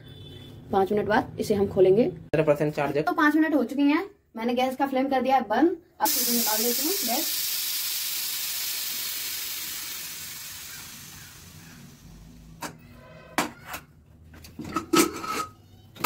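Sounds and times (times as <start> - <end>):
pressure cooker steam hissing: 6.0 - 12.6.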